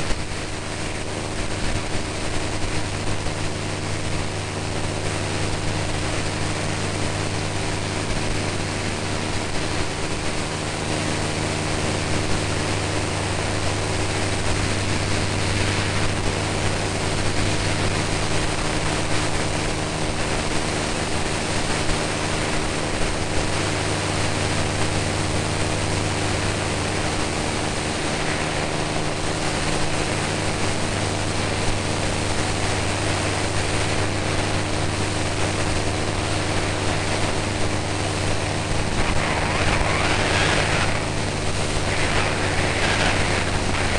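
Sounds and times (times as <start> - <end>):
propeller airplane engine drone: 0.0 - 43.9
wind rushing: 38.4 - 43.9.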